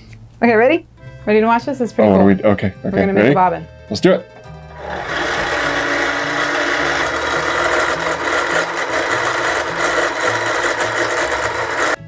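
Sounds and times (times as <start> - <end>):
sewing machine motor whirring: 4.7 - 12.0.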